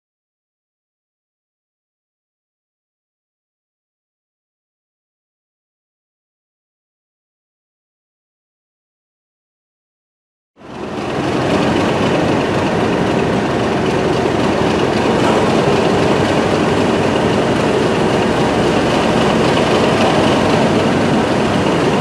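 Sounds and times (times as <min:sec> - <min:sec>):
diesel locomotive engine running: 0:10.6 - 0:22.0.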